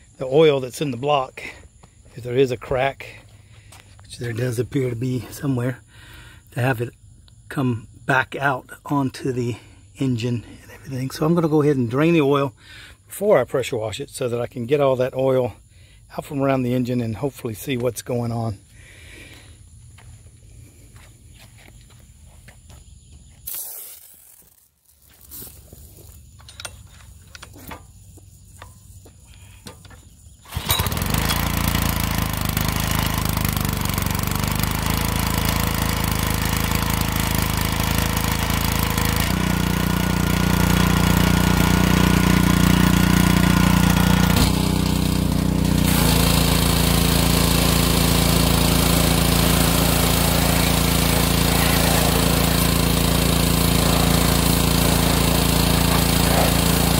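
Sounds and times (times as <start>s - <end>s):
water spraying: 23.5s - 25.9s, 30.6s - 56.9s
pressure washer engine running: 30.4s - 56.9s.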